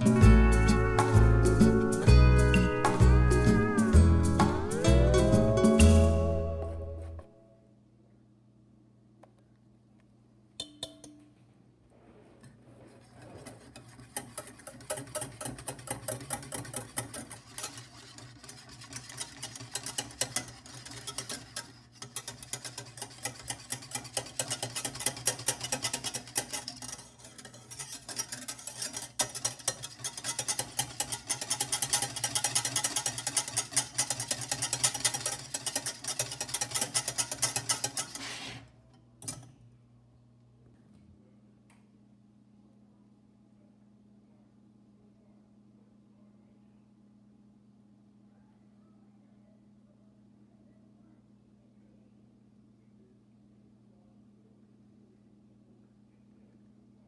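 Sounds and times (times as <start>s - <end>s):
low steady hum: 0.0s - 14.9s, 38.7s - 57.0s
whisk rattling in metal pan: 13.0s - 38.4s.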